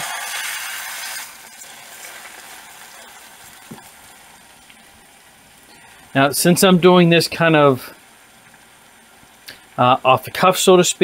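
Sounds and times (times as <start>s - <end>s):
meat sizzling in oil: 0.0s - 5.7s.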